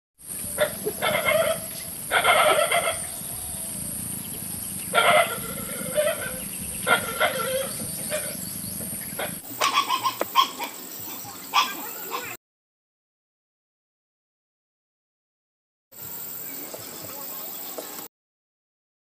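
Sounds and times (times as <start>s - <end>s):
frogs croaking: 0.2s - 12.4s
steady high hiss: 0.2s - 12.4s, 16.0s - 18.1s.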